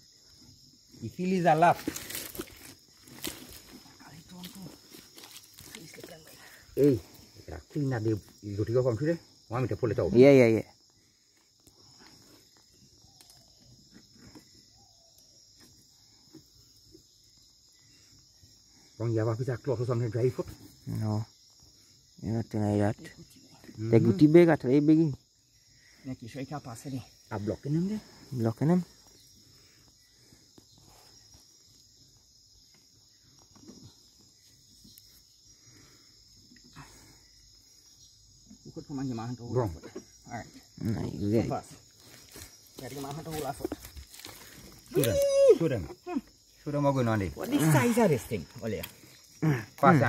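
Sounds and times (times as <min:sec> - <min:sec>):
night insects chirring: 0:00.0 - 0:50.0.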